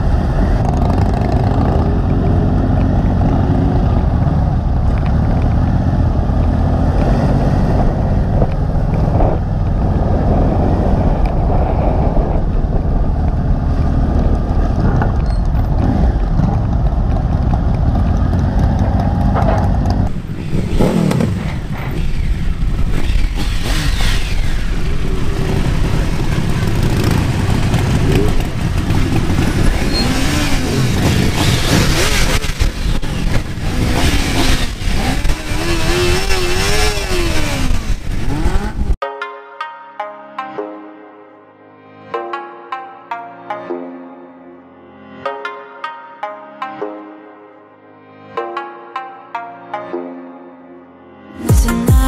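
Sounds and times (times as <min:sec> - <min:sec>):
motorcycle engines running: 0:00.0 - 0:39.0
motorcycles idling and revving: 0:00.0 - 0:39.0
wind rush: 0:06.8 - 0:39.0.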